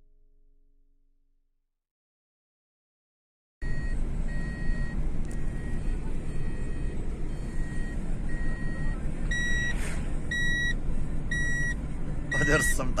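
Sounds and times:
car engine and tyre rumble: 3.6s - 13.0s
dashboard warning chime beeping: 3.6s - 13.0s
car whooshing past: 9.4s - 10.3s.

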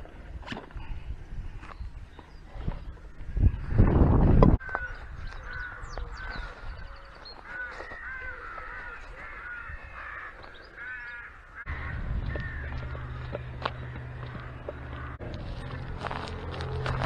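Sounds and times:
birds calling and chirping: 0.0s - 17.0s
steady low rumble: 11.7s - 17.0s.

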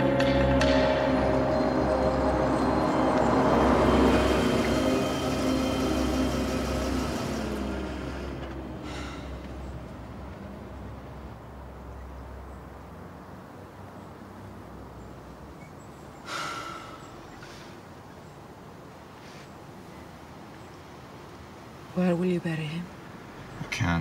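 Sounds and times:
car driving past: 0.0s - 15.6s.

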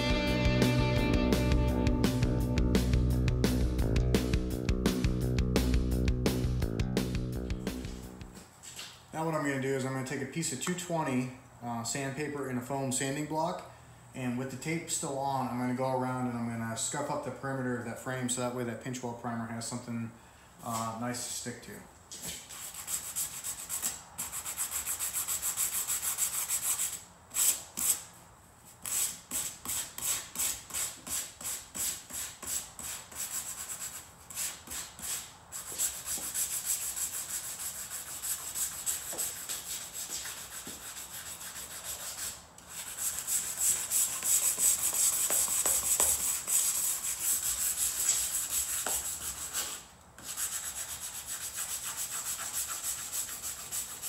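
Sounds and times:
sandpaper rubbing on metal: 22.4s - 28.1s, 28.8s - 54.0s.

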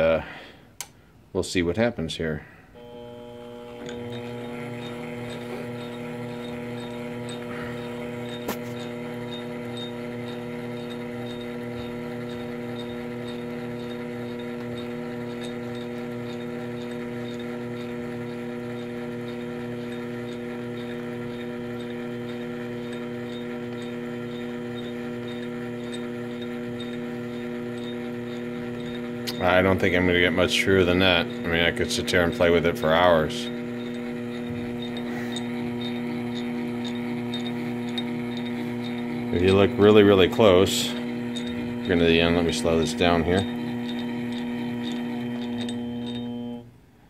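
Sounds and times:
click: 0.8s - 1.0s
feed motor humming: 2.7s - 47.0s.

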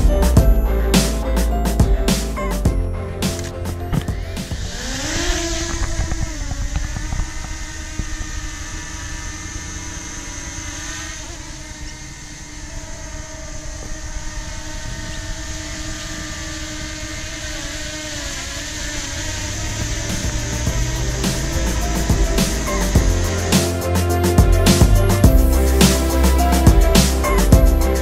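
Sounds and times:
drone propellers buzzing: 0.0s - 28.0s.

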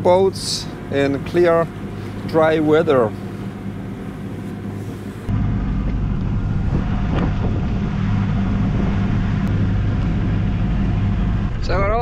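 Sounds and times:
boat engine hum: 0.0s - 12.0s
wind on microphone: 6.0s - 11.7s.

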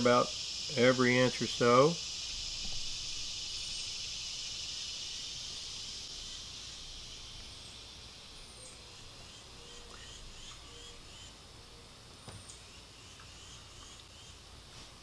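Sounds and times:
high-pitched insect chorus: 0.0s - 15.0s
faint bird chirps: 2.5s - 14.4s.

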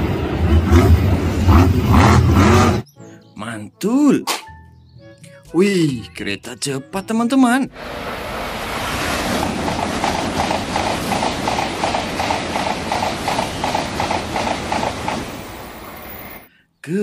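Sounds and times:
bullet train passing at high speed: 0.0s - 2.8s, 7.7s - 16.5s.

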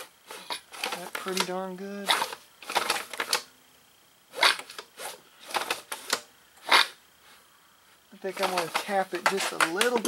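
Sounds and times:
recoil starter rope pulled: 0.3s - 1.5s, 4.4s - 7.0s, 8.3s - 10.0s.

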